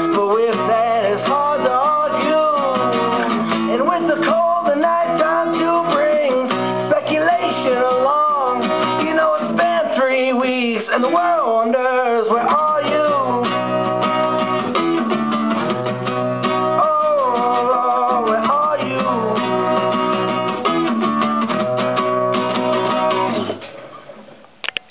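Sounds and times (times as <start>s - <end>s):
man singing: 0.0s - 14.4s, 16.6s - 20.5s
acoustic guitar strumming: 0.0s - 24.9s.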